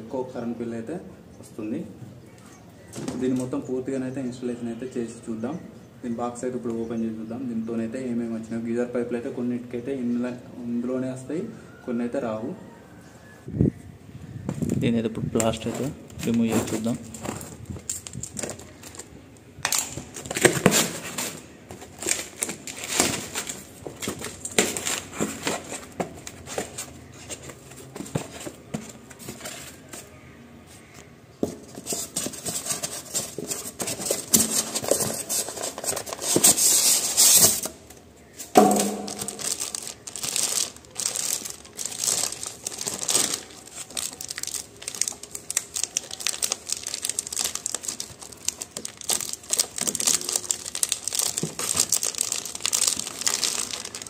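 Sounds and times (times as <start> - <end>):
plastic bag crinkling: 15.4 - 19.2, 19.8 - 30.1, 31.6 - 37.9, 38.5 - 54.0.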